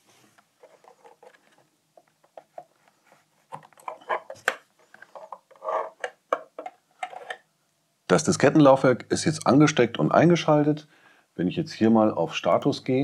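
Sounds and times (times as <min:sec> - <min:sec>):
cable connectors clicking and rustling: 0:00.4 - 0:07.4.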